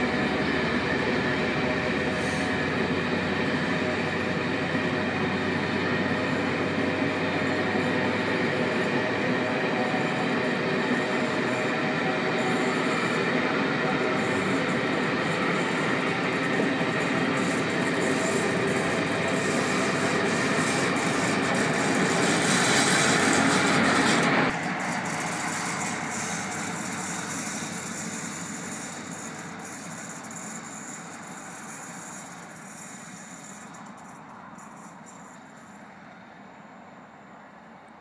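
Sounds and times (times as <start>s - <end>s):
diesel engines running: 0.0s - 37.1s
passenger train passing: 0.0s - 38.0s.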